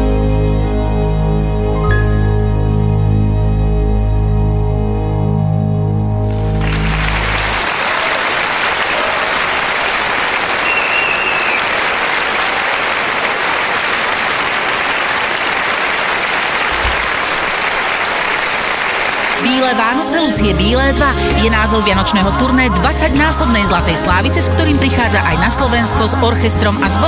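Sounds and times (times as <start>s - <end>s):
orchestra low note: 1.7s - 7.6s
audience applauding: 6.2s - 20.1s.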